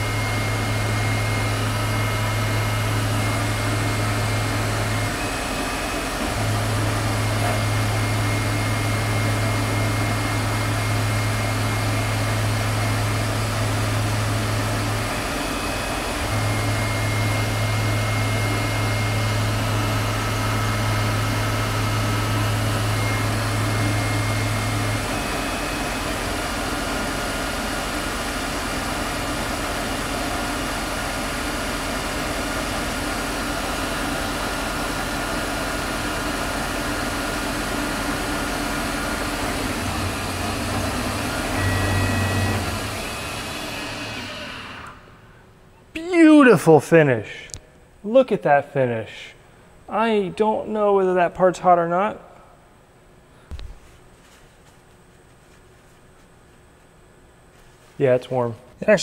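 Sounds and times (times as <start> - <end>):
lathe mechanical drone: 0.0 - 45.4.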